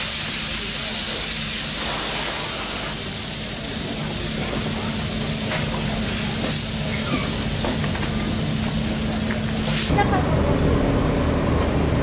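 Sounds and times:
steady hiss: 0.0s - 8.0s.

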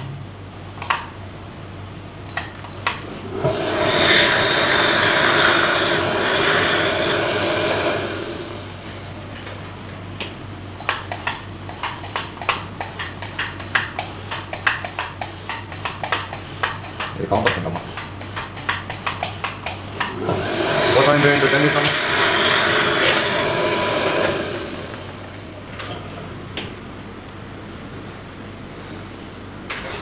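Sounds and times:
dental instrument hissing whir: 3.2s - 8.8s, 19.9s - 25.3s.

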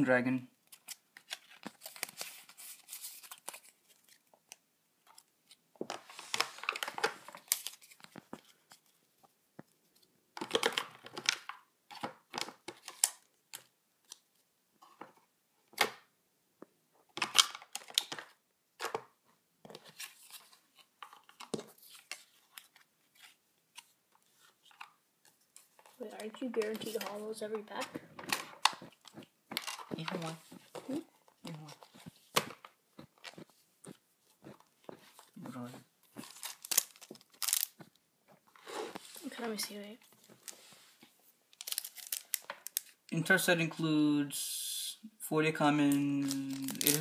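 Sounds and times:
cards sliding and rustling: 0.7s - 4.3s, 5.5s - 9.0s, 19.7s - 31.0s, 31.7s - 37.9s, 38.6s - 43.0s.

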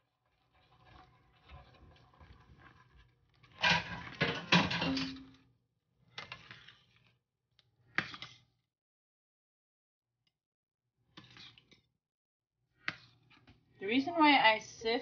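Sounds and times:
metal spoon scraping a pot: 11.2s - 11.8s.

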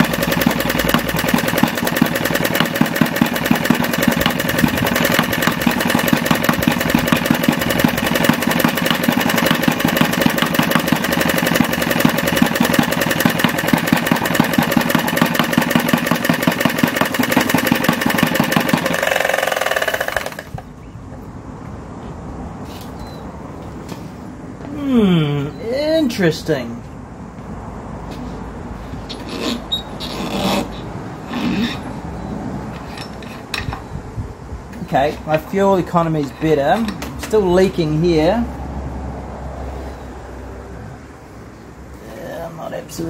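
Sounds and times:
small diesel engine knocking: 0.0s - 20.6s.

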